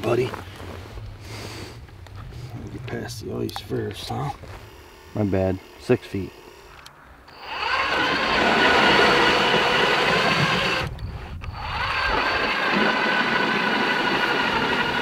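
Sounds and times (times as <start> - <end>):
power ice auger whining: 7.3 - 15.0.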